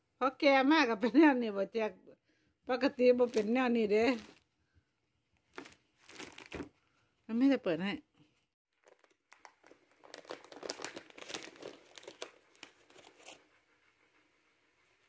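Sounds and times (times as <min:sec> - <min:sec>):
plastic snack packet crinkling: 0:03.2 - 0:04.4, 0:05.5 - 0:06.7, 0:08.7 - 0:13.4.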